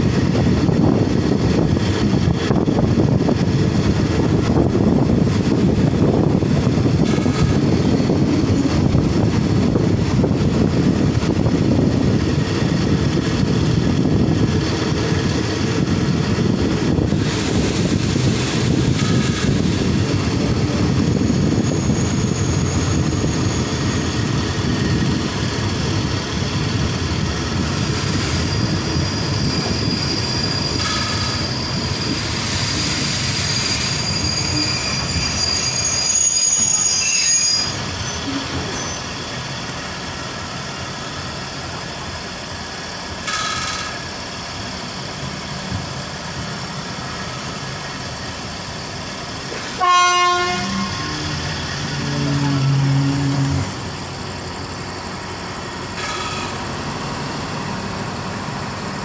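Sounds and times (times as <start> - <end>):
wind rushing past: 0.0 - 34.3
train carriage rumbling on rails: 0.0 - 59.0
faint brake squeal: 16.3 - 26.0, 27.4 - 41.2, 43.2 - 45.0, 45.7 - 54.1, 55.9 - 57.8.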